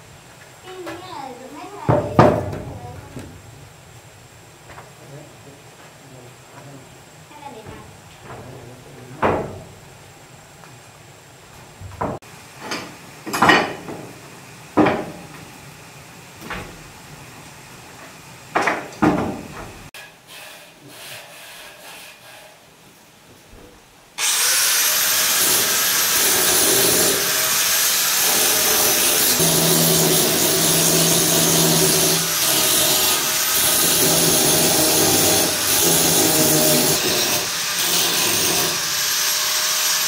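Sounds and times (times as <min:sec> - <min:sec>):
handheld power tool running: 0:24.2 - 0:40.0.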